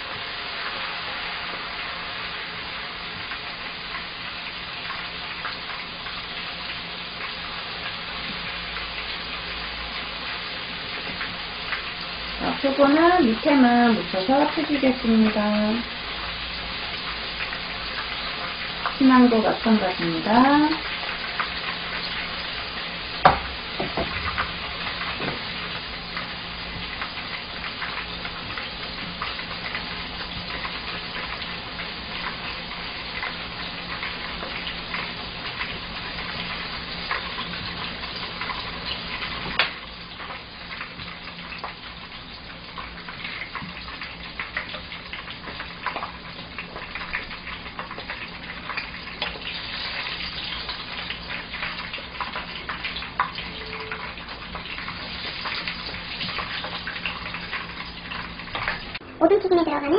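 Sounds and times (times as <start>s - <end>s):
deep-frying sizzle with pops: 0.0s - 59.9s.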